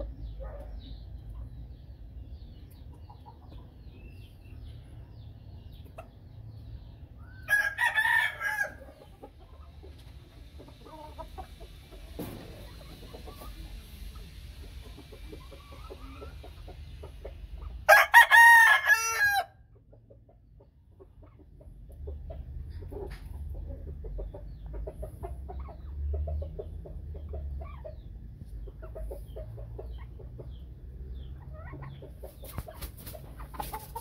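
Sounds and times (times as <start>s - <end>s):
rooster crowing: 7.4s - 8.9s, 17.9s - 19.6s.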